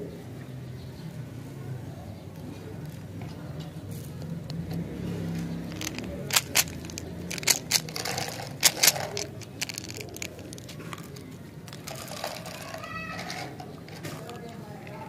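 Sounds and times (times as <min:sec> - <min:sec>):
plastic clicks and snaps: 0:02.8 - 0:11.9.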